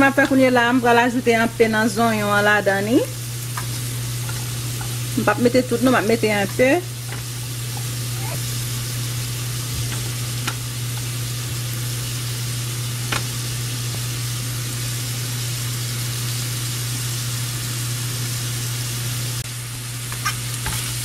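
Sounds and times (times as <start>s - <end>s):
food sizzling in hot oil: 0.0s - 21.0s.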